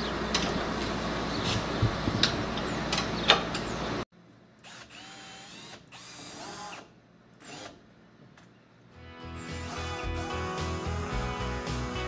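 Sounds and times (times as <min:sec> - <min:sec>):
cordless drill driving screws: 0:04.6 - 0:07.8.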